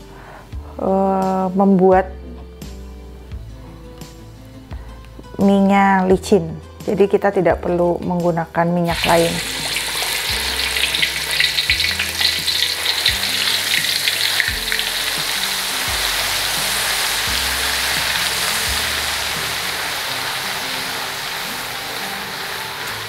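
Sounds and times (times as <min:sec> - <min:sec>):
spice paste frying in oil: 0:08.8 - 0:23.0.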